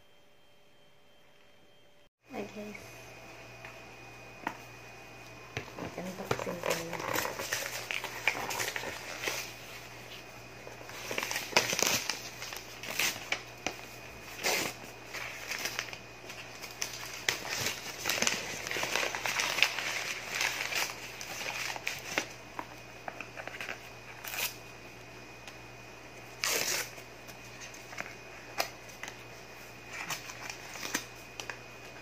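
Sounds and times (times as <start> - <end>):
gift wrapping crinkling: 6.0 - 22.4.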